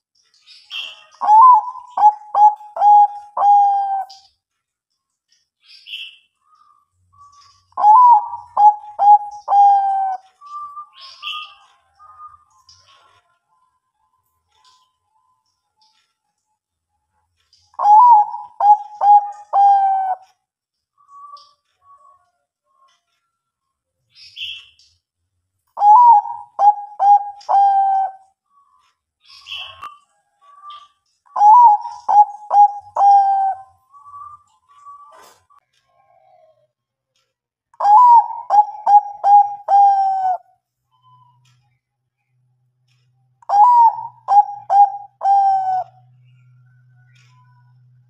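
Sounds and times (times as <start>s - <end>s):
dove cooing: 0.8s - 4.2s, 7.8s - 10.6s, 17.8s - 20.3s, 25.8s - 28.3s, 31.3s - 33.7s, 37.8s - 40.5s, 43.5s - 46.0s.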